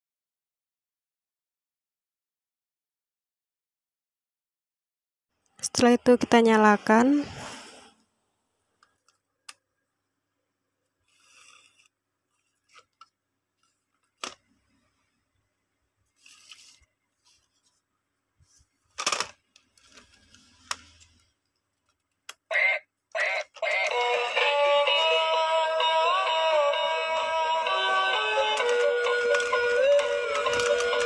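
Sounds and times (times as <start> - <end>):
plastic scrape: 11.0 - 13.0, 16.2 - 17.8, 18.5 - 21.3
toy electronic tune: 22.5 - 31.0.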